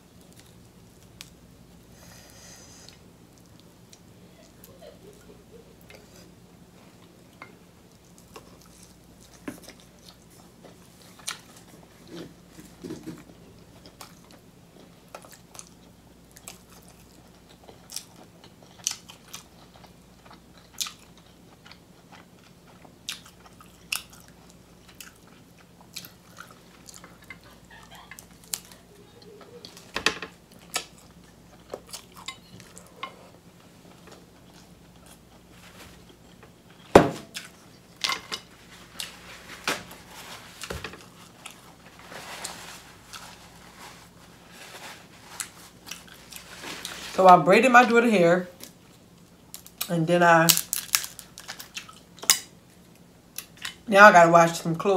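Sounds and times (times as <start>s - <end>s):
close-miked chewing: 13.6s - 29.9s, 30.5s - 38.0s, 50.8s - 53.8s.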